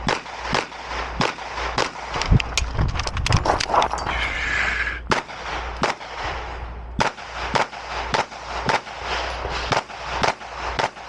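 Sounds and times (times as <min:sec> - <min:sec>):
pistol shots: 0:00.0 - 0:02.2, 0:05.1 - 0:11.0.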